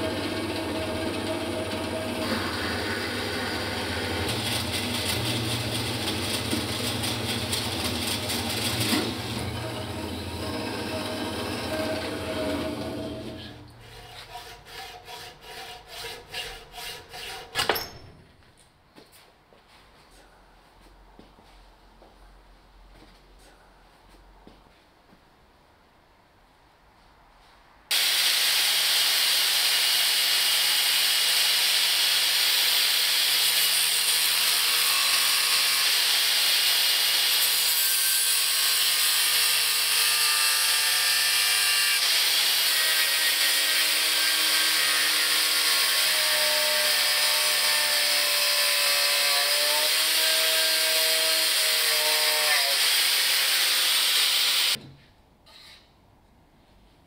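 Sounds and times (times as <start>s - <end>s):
angle grinder cutting metal: 0.0s - 13.6s, 27.9s - 54.8s.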